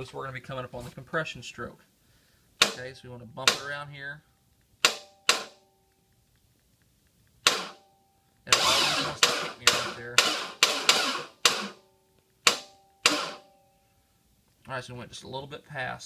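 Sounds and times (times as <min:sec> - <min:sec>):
starter motor cranking engine: 0:08.5 - 0:11.8.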